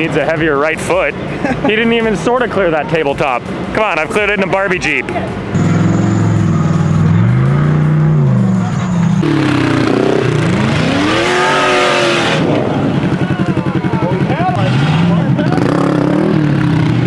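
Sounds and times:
race vehicle engine revving: 0:05.3 - 0:17.0.

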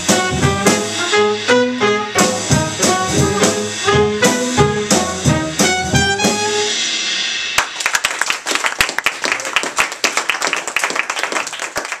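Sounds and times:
jazz combo playing: 0:00.0 - 0:08.0
audience applause: 0:07.6 - 0:12.0.

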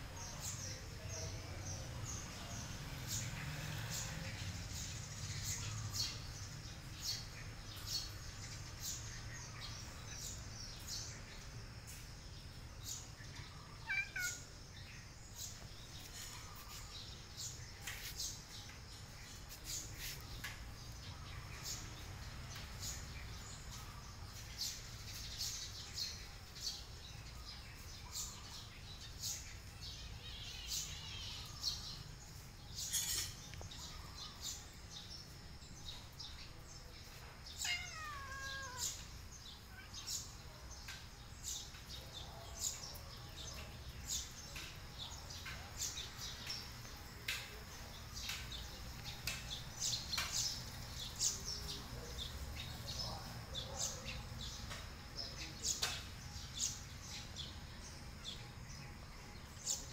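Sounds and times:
cat meowing: 0:13.8 - 0:14.5, 0:37.6 - 0:39.1.

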